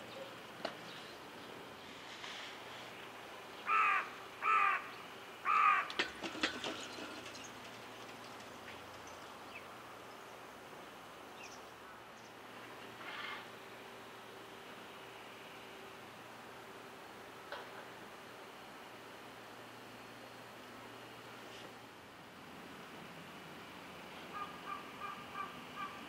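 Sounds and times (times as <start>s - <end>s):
crow cawing: 3.6s - 6.0s, 24.3s - 26.0s.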